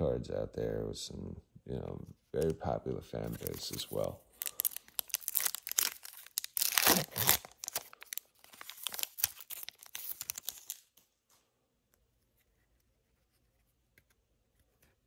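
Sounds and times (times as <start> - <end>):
foil wrapper tearing and crinkling: 3.2 - 11.0.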